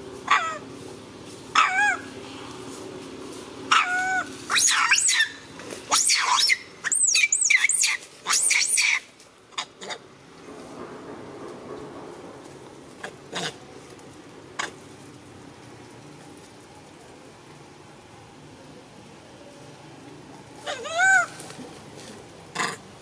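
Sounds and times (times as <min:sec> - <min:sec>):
monkey screaming calls: 0:00.3 - 0:00.6, 0:01.5 - 0:02.1, 0:03.7 - 0:10.0, 0:20.6 - 0:21.4.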